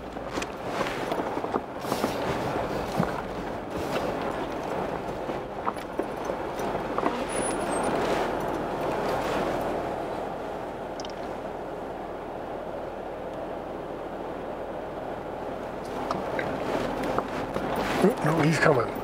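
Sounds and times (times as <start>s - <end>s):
tyres crunching on gravel: 0.0s - 10.0s, 15.8s - 19.0s
vehicle rattling: 0.0s - 19.0s.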